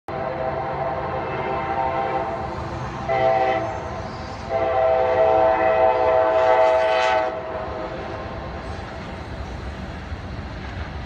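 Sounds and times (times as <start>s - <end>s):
locomotive air horn blasts: 0.1s - 2.4s, 3.0s - 7.8s.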